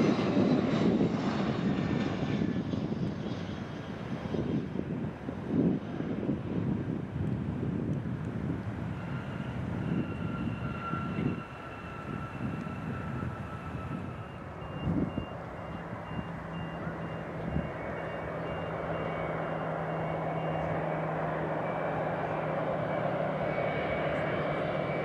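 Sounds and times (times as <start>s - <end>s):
distant jet whine: 0.0s - 25.0s
jet engines hum and whine: 0.0s - 25.0s
wind buffeting microphone: 0.0s - 25.0s
faint beeping: 8.9s - 25.0s.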